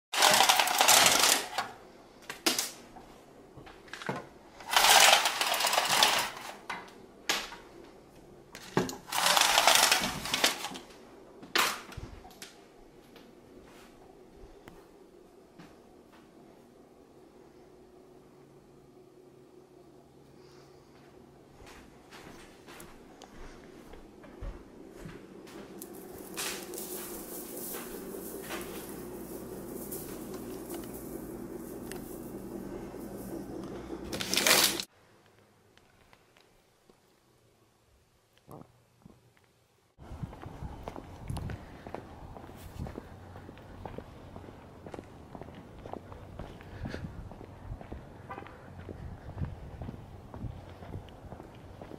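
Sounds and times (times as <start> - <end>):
blind slats rattling: 0.2 - 1.6, 4.6 - 6.6, 9.0 - 10.8
steady low hum: 10.9 - 34.9, 40.0 - 51.9
footsteps: 20.8 - 34.9, 40.2 - 51.9
brushing and scraping: 25.6 - 34.9.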